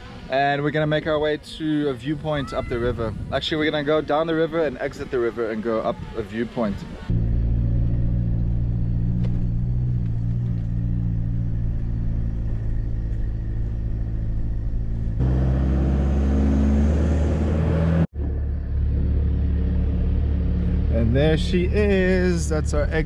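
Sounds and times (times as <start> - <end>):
wind noise: 1.0 - 15.2
pickup engine drone: 6.8 - 23.0.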